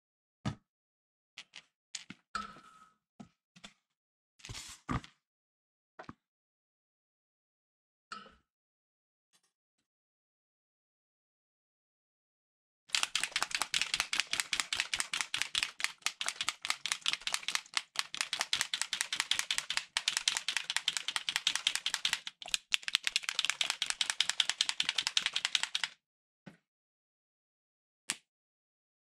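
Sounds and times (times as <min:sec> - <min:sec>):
rapid rattling clicks: 0:12.9 - 0:25.9.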